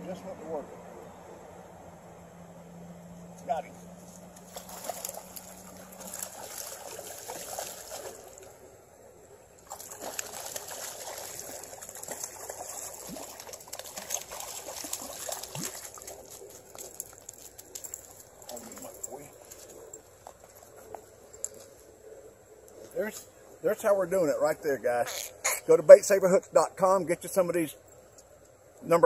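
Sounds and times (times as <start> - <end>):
fish splashing in water: 4.4 - 8.6, 9.6 - 18.9.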